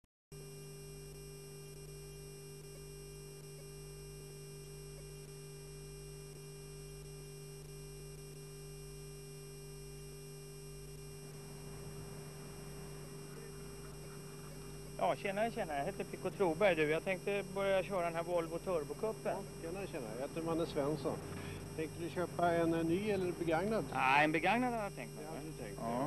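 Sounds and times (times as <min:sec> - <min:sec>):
mains hum: 0:00.3 - 0:26.0
constant tones: 0:10.8 - 0:26.0.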